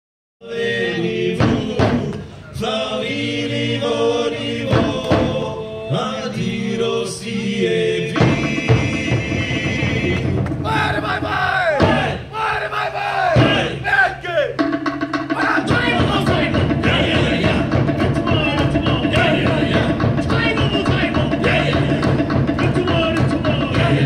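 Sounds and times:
chanting with long held notes: 0.4 - 14.5, 15.3 - 24.0
rapid percussion: 1.3 - 2.3, 4.6 - 5.5, 8.1 - 12.3, 13.2 - 24.0.

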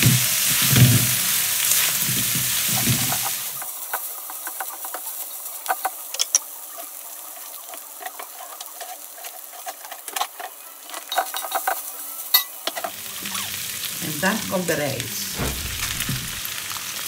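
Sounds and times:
food sizzling in a pan: 0.0 - 17.0
utensil scraping a pan: 7.5 - 10.6
sharp knocks on a pan: 15.4 - 16.4.

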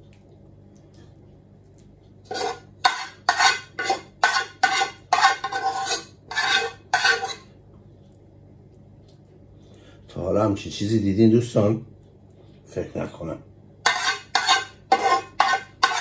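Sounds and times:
metal spoon scraping a pot: 2.3 - 7.5, 13.8 - 16.0.

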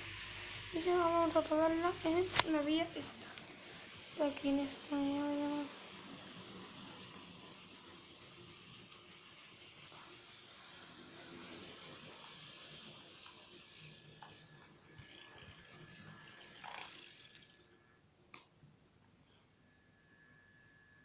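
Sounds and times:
hiss: 0.0 - 17.7
model train rattling: 0.0 - 17.8
click: 18.3 - 18.5.

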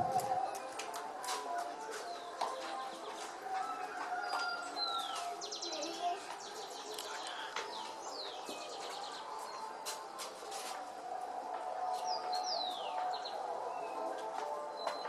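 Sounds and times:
birds chirping and trilling: 2.1 - 9.7, 12.1 - 14.1.

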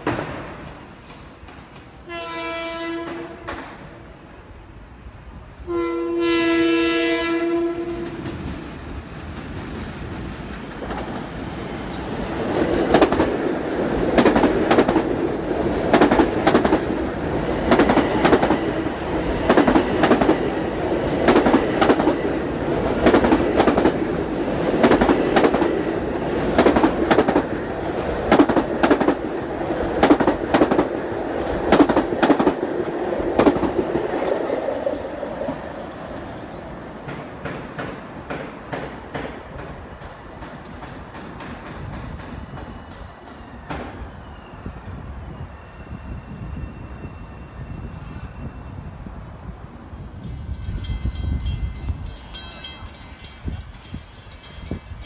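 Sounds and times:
train rolling noise: 0.0 - 55.0
train horn blast: 2.0 - 3.7, 5.6 - 8.3
wheels clacking over rail joints: 8.1 - 35.6.

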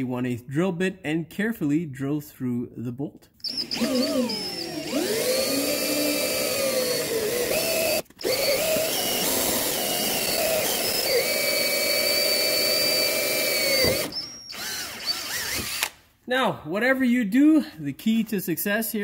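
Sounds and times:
power drill drilling into metal: 3.4 - 16.0.

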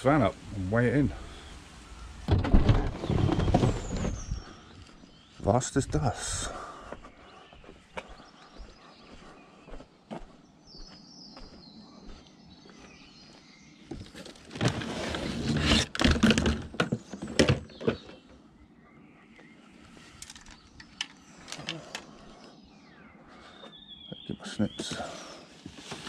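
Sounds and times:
cardboard box rustling: 2.4 - 4.3.

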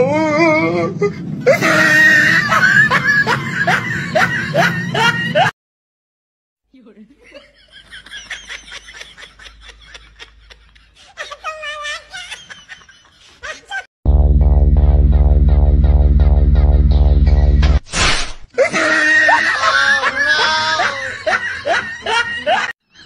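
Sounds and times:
person laughing hard: 1.4 - 5.5, 18.6 - 22.8.

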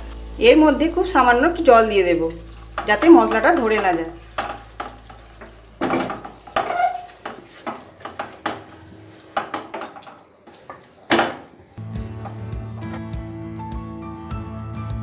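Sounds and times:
background music: 0.0 - 4.0, 11.8 - 15.0
wooden spatula scraping a pan: 1.7 - 13.0.

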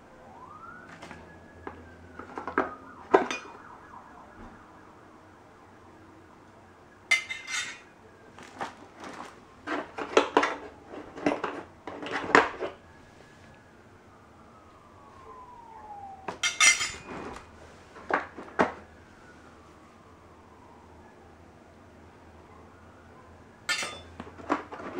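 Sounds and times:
metal nozzles clinking: 7.1 - 7.8, 16.4 - 17.3, 23.7 - 24.2.

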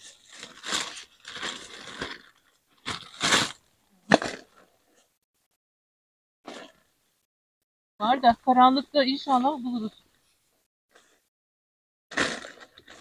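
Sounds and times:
bags rustling and crinkling: 0.0 - 4.7, 12.1 - 13.0.

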